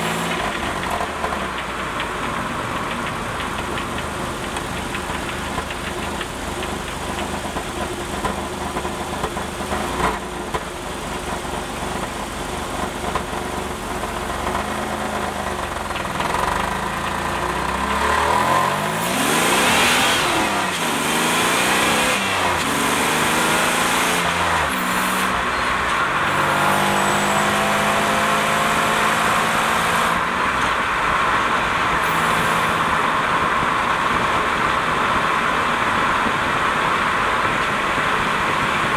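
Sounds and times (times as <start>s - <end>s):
car engine running: 0.0s - 38.9s
transmission rattle: 0.2s - 9.4s.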